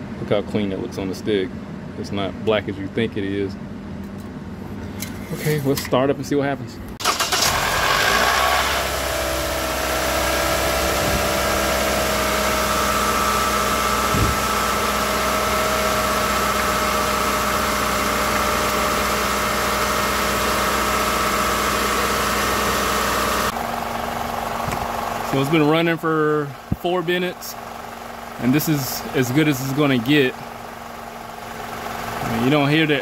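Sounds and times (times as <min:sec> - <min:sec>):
car engine idling: 0:07.0 - 0:33.0
low thump: 0:14.1 - 0:14.5.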